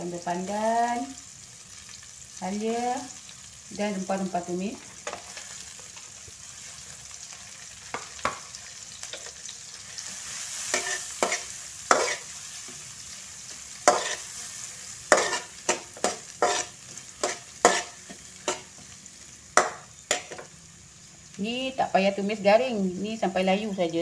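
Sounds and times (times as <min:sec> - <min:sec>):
food sizzling in hot oil: 0:00.0 - 0:24.0
metal spatula scraping a wok: 0:09.9 - 0:12.8, 0:13.5 - 0:18.8.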